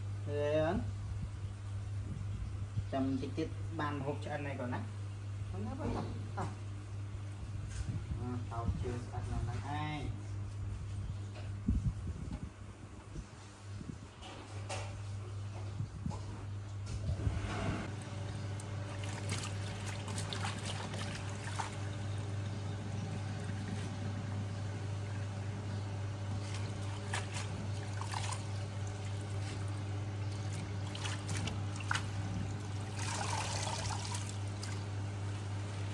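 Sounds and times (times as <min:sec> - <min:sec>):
steady low hum: 0:00.0 - 0:35.9
water dripping: 0:17.9 - 0:22.5
hands splashing in water: 0:18.9 - 0:22.0, 0:26.4 - 0:34.9
tap water running into bowl: 0:26.9 - 0:34.8.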